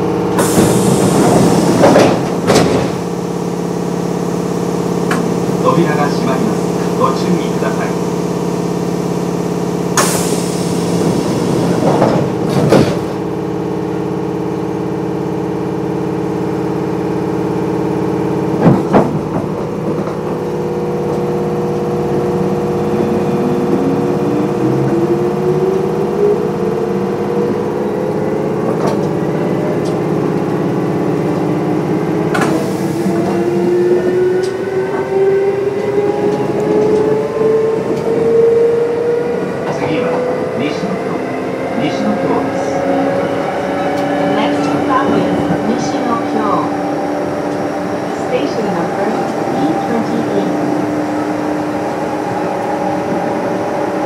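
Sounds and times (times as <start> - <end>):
train equipment hum: 0.0 - 54.0
traction motor whine rising: 19.2 - 54.0.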